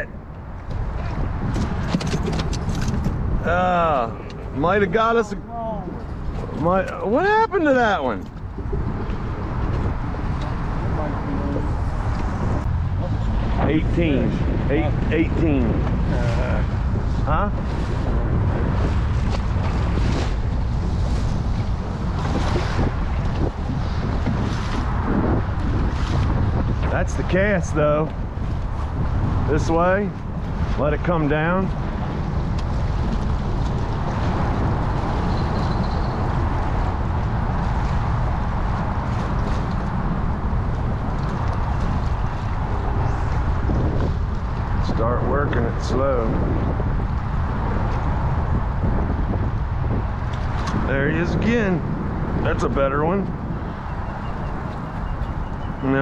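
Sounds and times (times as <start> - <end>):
wind buffeting microphone: 0.0 - 56.0
water slapping against boat: 17.6 - 27.4.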